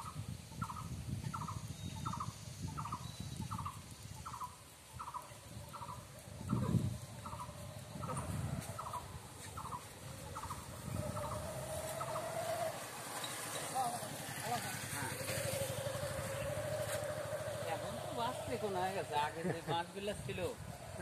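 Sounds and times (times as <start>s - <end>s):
low rumble: 14.7s - 21.0s.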